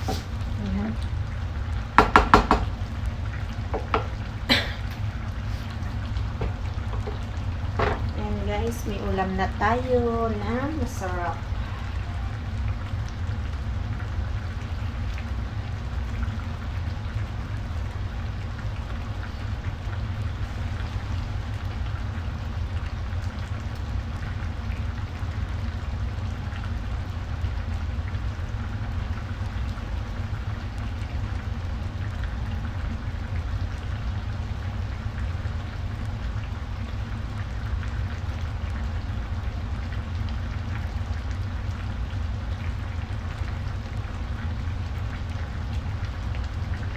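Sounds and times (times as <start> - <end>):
broth simmering and bubbling: 0.0 - 46.9
steady low hum: 0.0 - 46.9.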